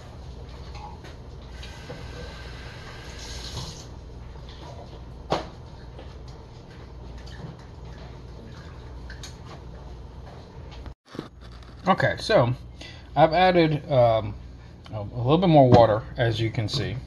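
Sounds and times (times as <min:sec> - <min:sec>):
steady low hum: 0:00.0 - 0:17.0
kitchen water running: 0:01.5 - 0:04.5.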